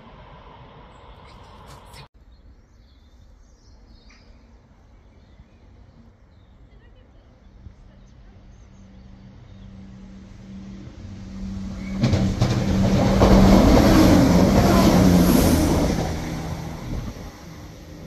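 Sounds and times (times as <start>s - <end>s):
diesel train passing at speed: 0.0s - 2.1s, 6.9s - 18.0s.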